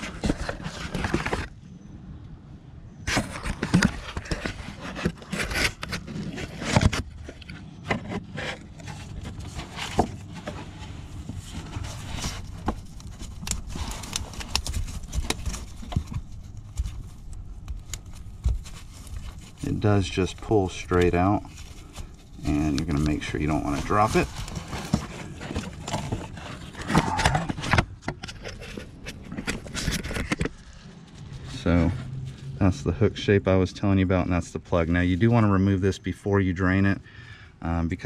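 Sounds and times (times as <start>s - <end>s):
clicks rubs and scrapes of handling: 0.0s - 1.5s, 3.0s - 32.5s.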